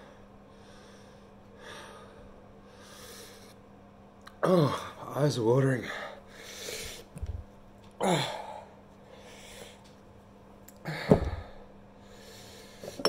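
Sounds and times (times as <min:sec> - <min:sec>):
man breathing hard: 0:00.0 - 0:03.6, 0:05.8 - 0:07.1, 0:08.0 - 0:10.0, 0:10.8 - 0:13.0.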